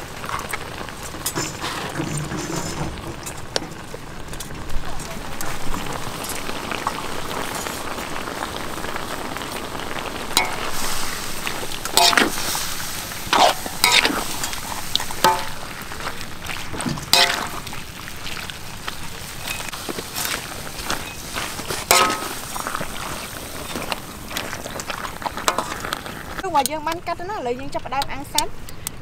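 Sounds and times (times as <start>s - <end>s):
food sizzling: 0.0s - 28.6s
utensils clattering: 1.2s - 3.8s, 11.8s - 12.6s, 13.3s - 15.7s, 20.9s - 23.9s.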